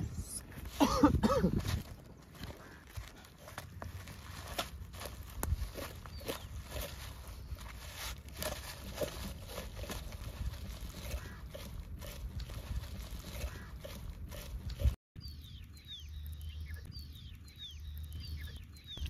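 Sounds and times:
low steady hum: 0.0 - 19.0
bird chirping: 5.8 - 7.7, 15.2 - 19.0.

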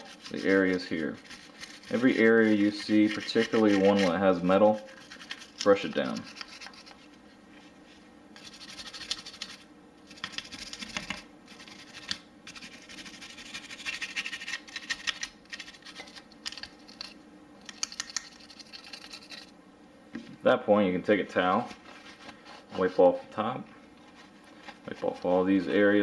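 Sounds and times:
brush scrubbing metal: 0.0 - 7.1, 8.4 - 14.6, 24.0 - 25.8.

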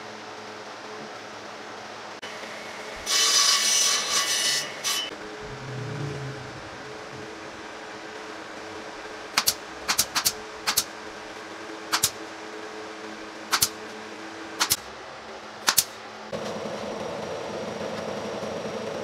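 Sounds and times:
steady low hum: 5.1 - 17.4
nail gun firing: 9.4 - 10.9, 11.9 - 12.2, 13.5 - 13.8, 14.6 - 14.9, 15.6 - 16.0.

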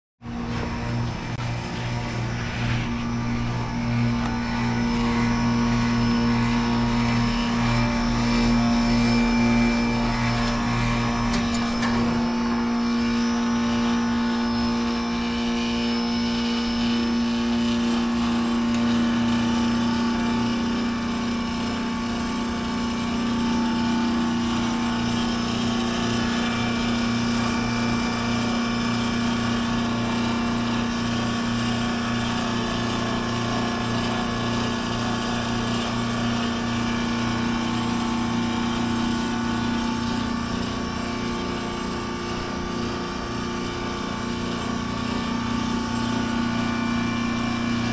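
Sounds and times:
heat pump compressor humming: 0.2 - 47.9.

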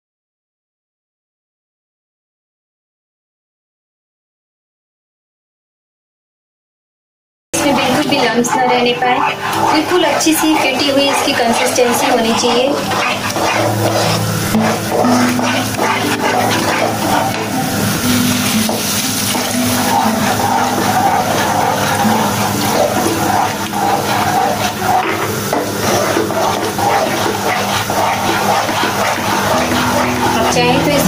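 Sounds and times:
spatula scraping sauce in pan: 7.6 - 31.0
steady rushing hiss: 7.6 - 31.0.

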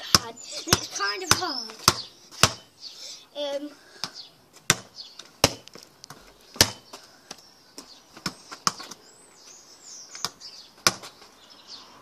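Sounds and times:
football bouncing on hard ground: 0.0 - 2.7, 4.0 - 9.0, 10.2 - 11.2.

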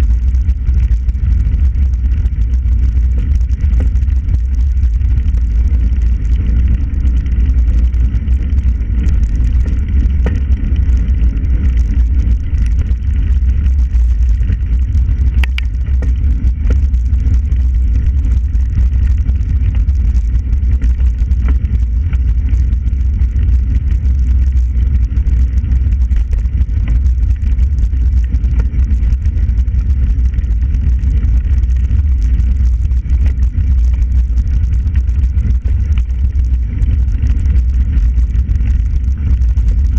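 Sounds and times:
wind rumble on microphone: 0.0 - 39.9
light clicks and rattles: 9.0 - 17.1.

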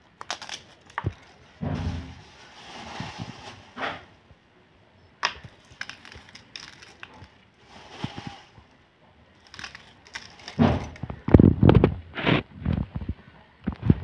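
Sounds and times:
crispy noodles crumbled by hand: 0.0 - 1.6, 5.2 - 8.6, 9.3 - 11.9.

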